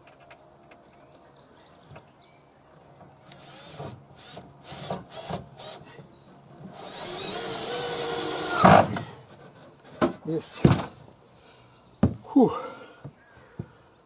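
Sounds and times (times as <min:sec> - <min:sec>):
cordless drill motor whine: 0:06.8 - 0:08.7.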